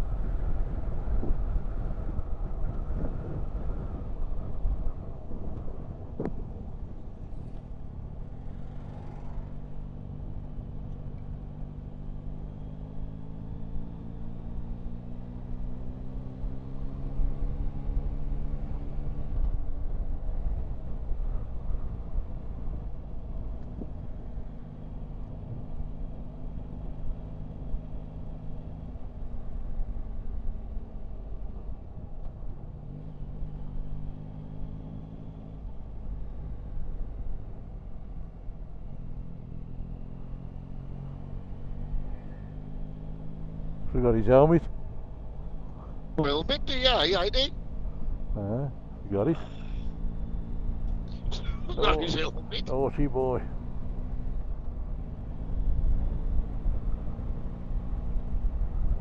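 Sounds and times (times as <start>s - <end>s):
wind rumble on microphone: 0.0s - 7.6s.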